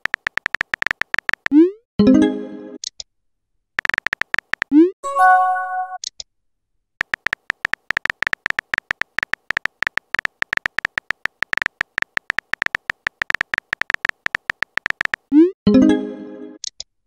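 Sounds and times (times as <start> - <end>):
keyboard tap clicks: 0.0 - 1.5, 3.8 - 4.7, 7.0 - 15.2.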